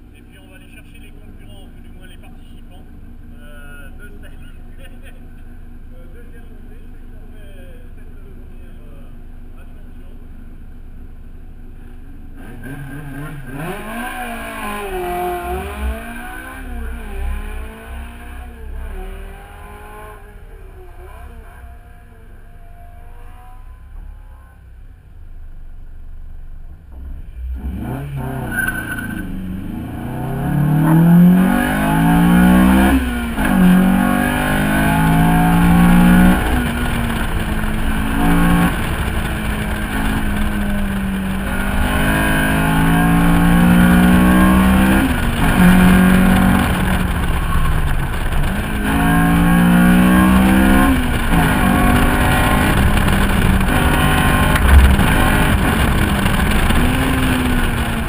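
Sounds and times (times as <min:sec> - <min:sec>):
car engine revving hard: 0:12.4 - 0:20.2, 0:27.4 - 0:58.0.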